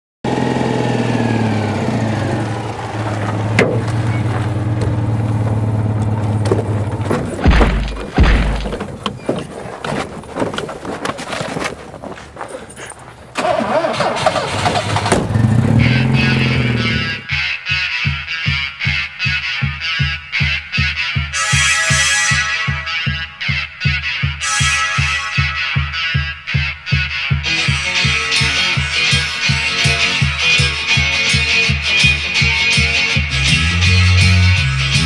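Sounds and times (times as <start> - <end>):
car engine running: 0.3 - 9.0, 12.6 - 17.4
heavy thumps: 3.5 - 4.1, 6.4 - 11.6
knocks and rattles: 3.5 - 4.1, 6.1 - 13.1, 14.5 - 15.7.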